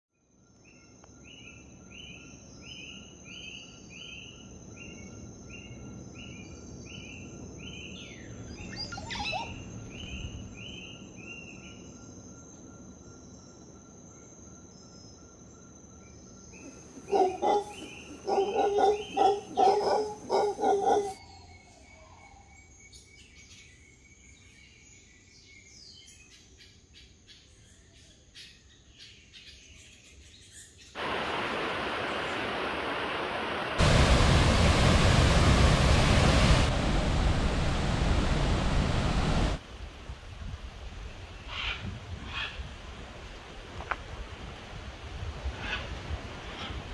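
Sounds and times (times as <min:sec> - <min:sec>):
high insect whine: 0:00.2 - 0:23.1, 0:31.0 - 0:39.7
bird chirps: 0:07.7 - 0:11.8
bird calling: 0:08.5 - 0:10.1, 0:16.6 - 0:21.2
loud rushing noise: 0:31.0 - 0:39.6.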